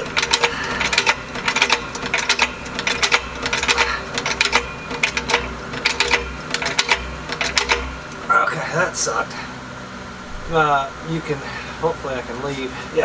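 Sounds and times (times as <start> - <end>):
floor jack clicking and clanking: 0.0 - 7.9.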